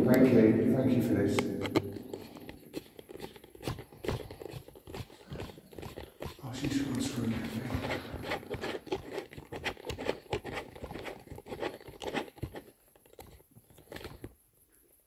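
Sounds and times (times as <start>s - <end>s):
footsteps on gritty concrete: 1.4s - 12.4s.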